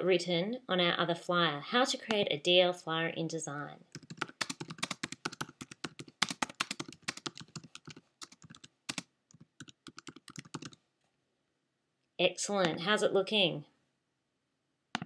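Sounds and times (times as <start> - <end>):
computer keyboard typing: 3.9 - 10.8.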